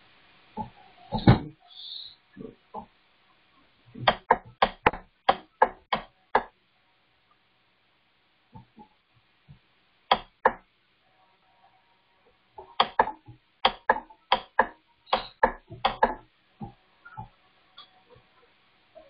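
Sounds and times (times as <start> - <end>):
sharp clicking taps: 4.0 - 6.5, 10.1 - 10.6, 12.7 - 17.9.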